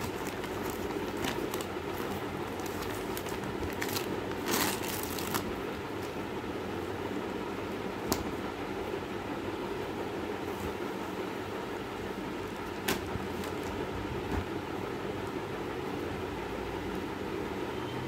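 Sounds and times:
plastic bags crinkling: 0.0 - 6.1.

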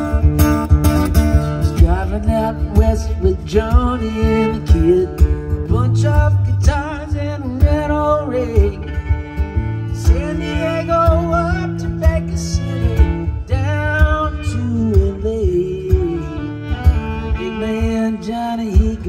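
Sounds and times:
acoustic guitar strumming: 0.0 - 19.0
fiddle playing melody: 7.8 - 19.0.

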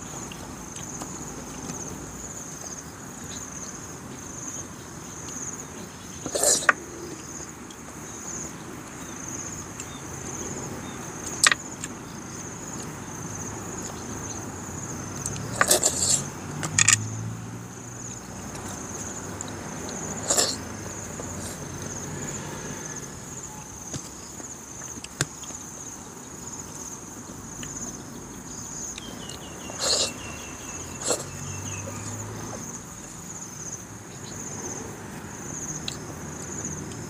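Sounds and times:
high insect trill: 0.0 - 37.0
slurping snails from shells: 4.6 - 7.8, 13.7 - 17.3, 18.1 - 26.0, 28.7 - 33.3.

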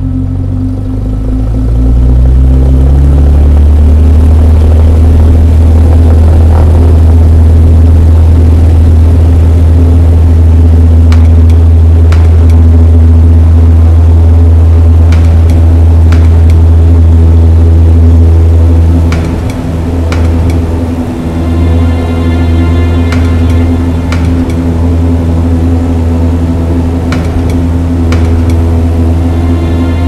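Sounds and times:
loud low drone: 0.0 - 30.0
low tone gliding up: 0.0 - 30.0.

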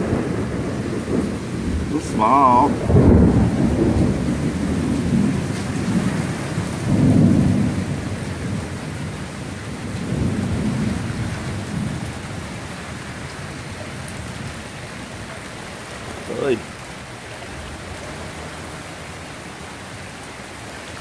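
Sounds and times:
thunder rolling: 0.0 - 12.6
hail falling: 0.0 - 21.0
rain hissing: 0.0 - 21.0.

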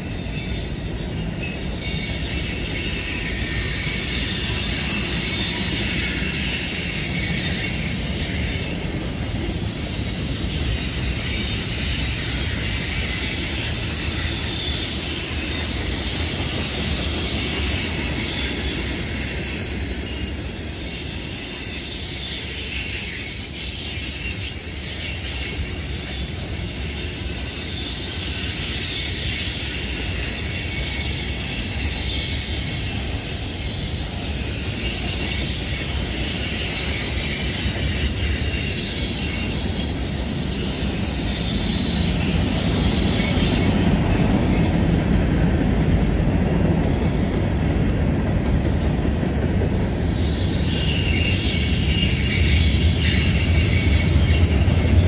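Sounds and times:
high-pitched wheel squeal: 0.0 - 47.6, 49.6 - 55.0
train wheels rumbling on rail: 0.0 - 55.0.

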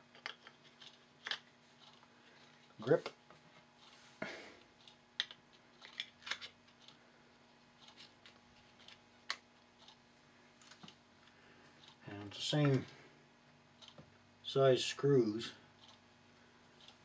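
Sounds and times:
small parts clicking and tapping: 0.1 - 2.0, 4.8 - 7.0.

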